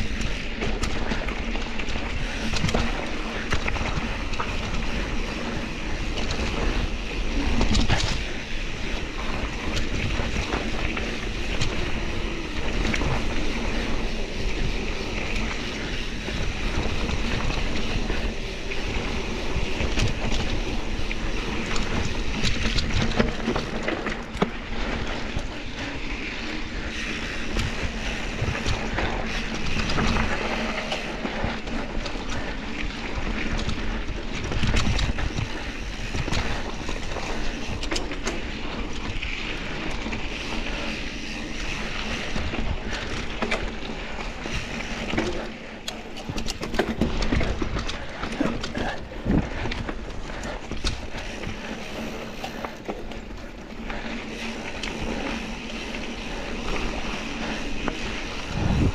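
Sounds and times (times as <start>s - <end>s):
bike knocks and rattles: 0.0s - 58.9s
bike tyres rolling on dirt: 0.0s - 58.9s
wind on microphone: 46.1s - 58.9s.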